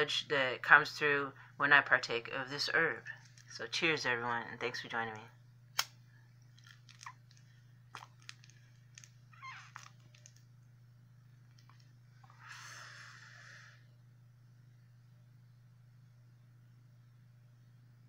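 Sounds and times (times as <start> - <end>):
low hum: 2.2 - 18.0
breathy exhale: 12.2 - 13.9.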